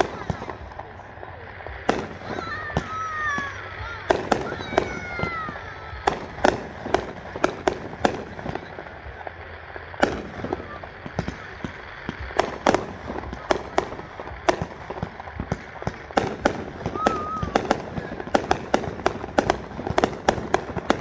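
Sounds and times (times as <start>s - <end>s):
fireworks bangs: 0.0s - 21.0s.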